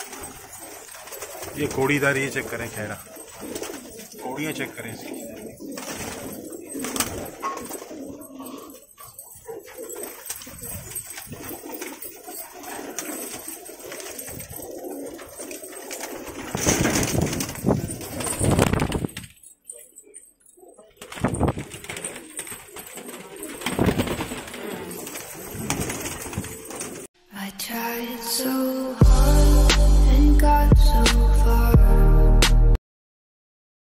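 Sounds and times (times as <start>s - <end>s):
loud rustling flurry: 0.0s - 20.0s, 20.9s - 27.1s
pigeons cooing: 0.0s - 27.1s.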